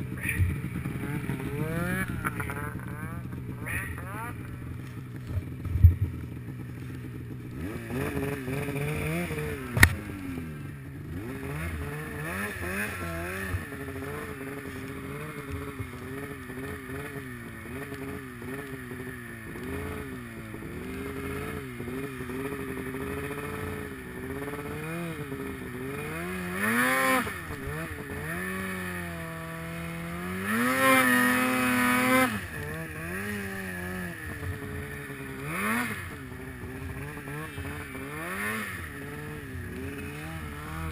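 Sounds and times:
snowmobile engine revving: 0:00.0 - 0:40.9.

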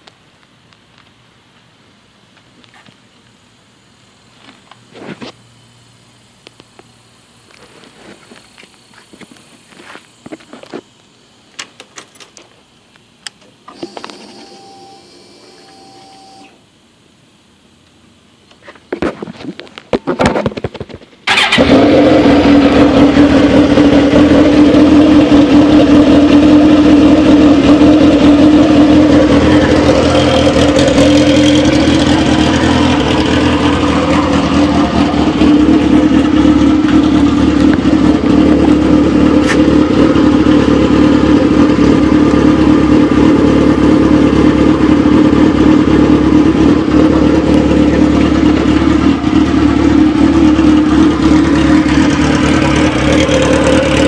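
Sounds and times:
motorcycle engine starting and idling: 0:11.4 - 0:16.7, 0:19.3 - 0:54.0.

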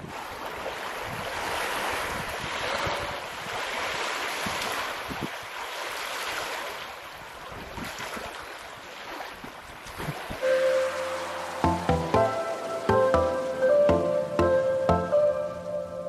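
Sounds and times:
wind gusting on microphone: 0:00.0 - 0:05.6
small waves washing ashore: 0:00.0 - 0:16.0.

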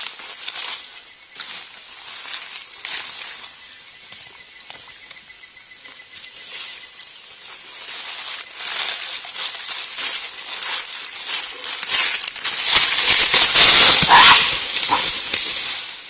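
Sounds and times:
dry leaves rustling and crackling: 0:00.0 - 0:05.0, 0:05.8 - 0:16.0.

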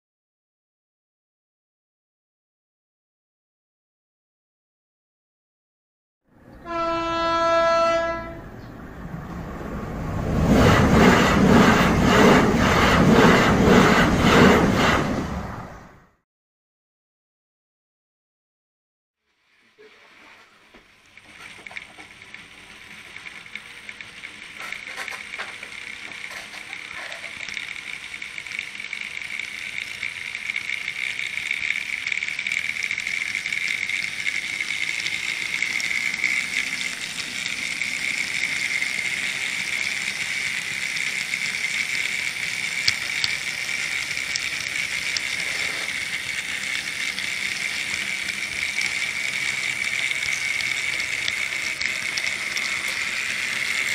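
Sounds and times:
model train motor whine: 0:06.6 - 0:08.4, 0:09.2 - 0:15.3, 0:19.3 - 0:53.9
wheels rattling on rail: 0:09.0 - 0:15.5.

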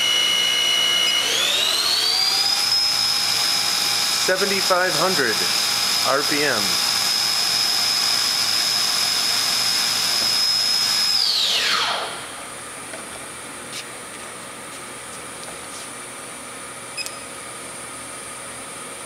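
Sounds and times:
machine spindle whining: 0:00.0 - 0:12.6.

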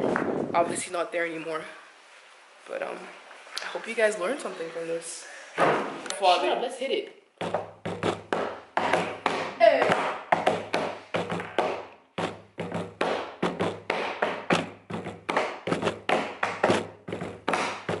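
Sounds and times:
taps and thuds: 0:07.4 - 0:18.0.

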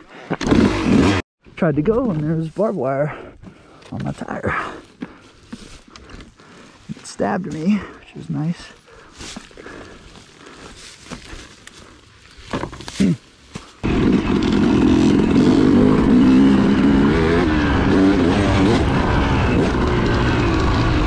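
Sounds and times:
two-stroke dirt bike engine running: 0:00.4 - 0:01.2, 0:08.9 - 0:21.0.

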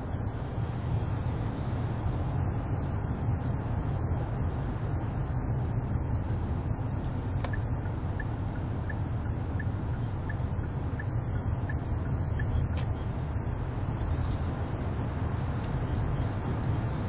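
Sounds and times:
road and engine rumble in car: 0:00.0 - 0:17.0.

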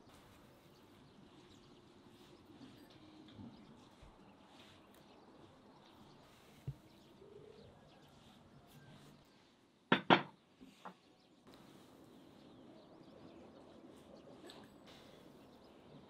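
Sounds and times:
faint bird chirps: 0:00.0 - 0:09.7.

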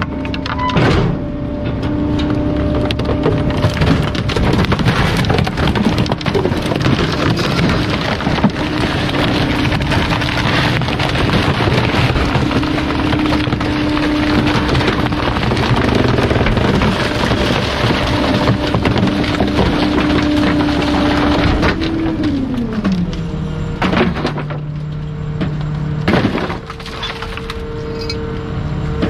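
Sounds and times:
waste crackling and crunching: 0:02.7 - 0:23.2
steady machine whine: 0:07.1 - 0:29.0.

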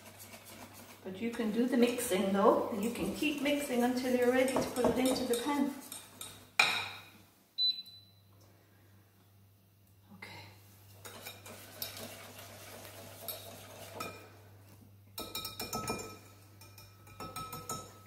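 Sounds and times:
whisk clinking against glass bowl: 0:04.2 - 0:06.4, 0:15.2 - 0:18.0.

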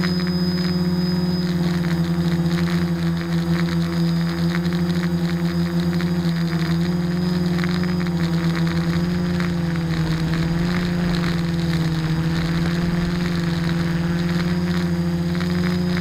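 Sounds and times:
drone propellers humming: 0:00.0 - 0:16.0.

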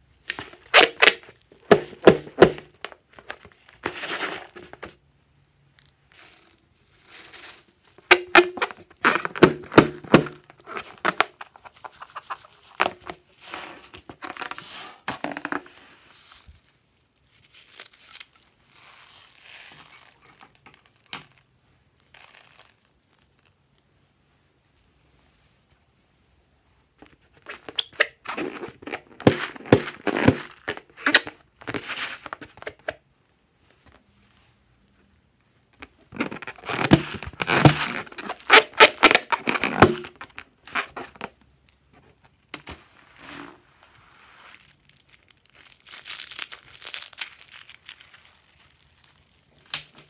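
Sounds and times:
balloon tearing: 0:00.3 - 0:04.8, 0:07.2 - 0:16.4, 0:17.5 - 0:23.6, 0:27.4 - 0:32.6, 0:36.2 - 0:41.4, 0:42.6 - 0:49.8
balloon squeaking and crinkling: 0:00.3 - 0:04.9, 0:06.1 - 0:23.8, 0:27.2 - 0:32.8, 0:35.8 - 0:41.4, 0:42.8 - 0:50.0.

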